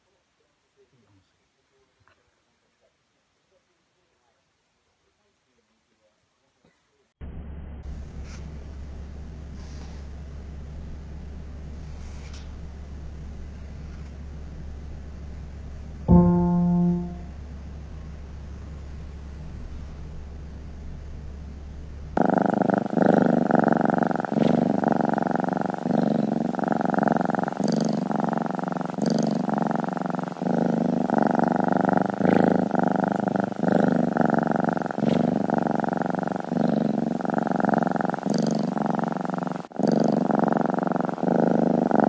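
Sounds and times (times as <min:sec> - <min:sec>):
faint low hum: 0:00.0 - 0:37.2
cat purring loudly: 0:09.5 - 0:17.3, 0:22.2 - 0:42.0.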